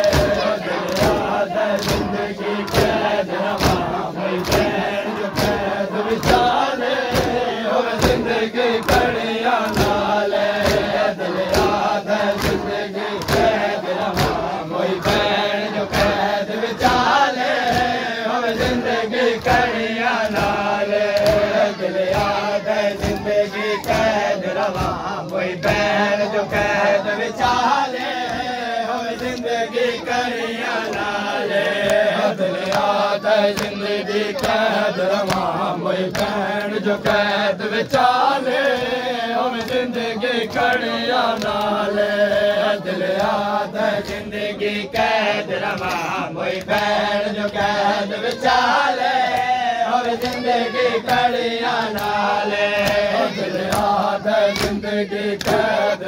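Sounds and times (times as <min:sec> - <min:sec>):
hands beating chests: 0:00.0 - 0:15.3, 0:19.4 - 0:25.9
men chanting in unison: 0:00.0 - 0:56.0.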